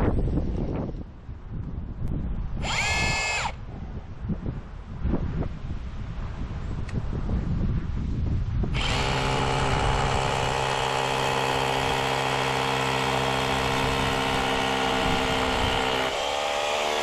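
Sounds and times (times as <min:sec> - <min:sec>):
cordless drill boring into masonry: 0:02.6 - 0:03.6, 0:08.8 - 0:17.0.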